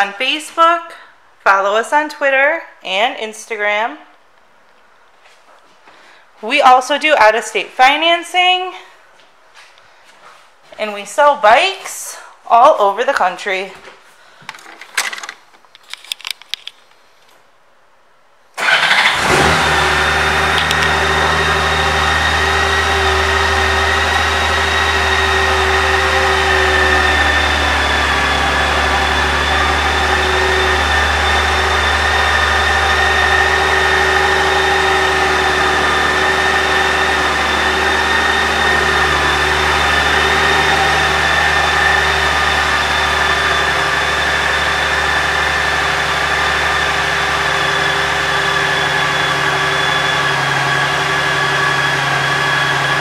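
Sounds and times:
motorcycle engine starting and idling: 18.6s - 53.0s.

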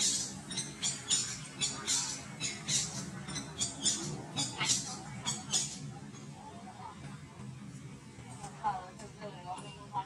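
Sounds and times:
bird squawking: 0.0s - 5.8s.

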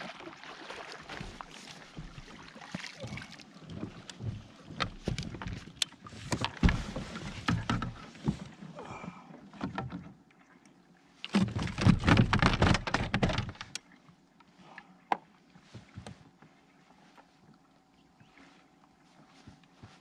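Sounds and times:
gear knocking and scraping on kayak: 3.6s - 8.7s, 11.2s - 13.8s.

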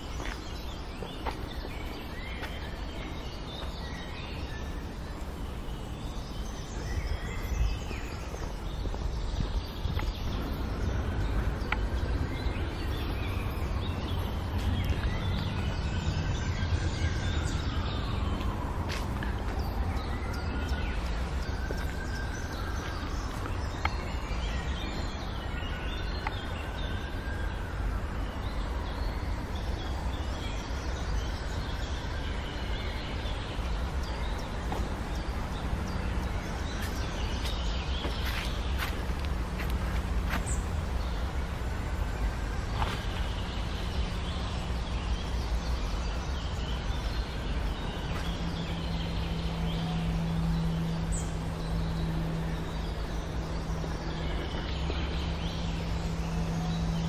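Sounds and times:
birds chirping: 0.0s - 57.0s
steady low rumble: 0.0s - 57.0s.

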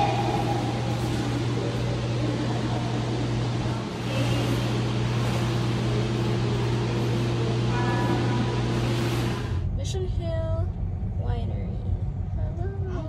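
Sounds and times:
car driving low drone: 0.0s - 13.0s.

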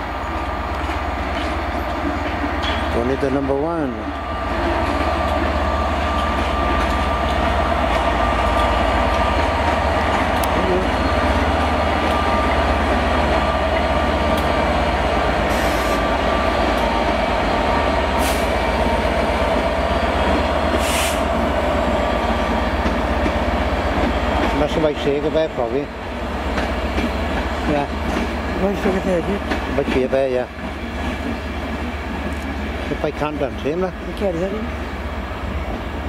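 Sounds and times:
diesel locomotive engine drone: 0.0s - 36.0s
wheels rumbling on rails: 0.0s - 36.0s
short hisses: 20.8s - 21.3s.

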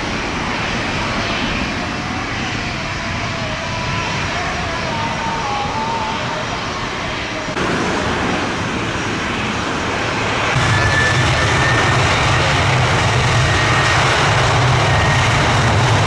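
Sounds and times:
airliner engines roaring: 0.0s - 16.0s.

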